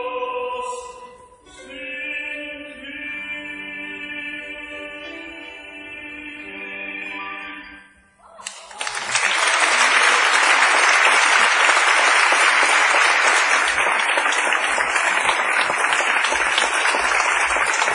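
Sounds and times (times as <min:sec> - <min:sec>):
audience applauding: 0:08.4 - 0:17.9.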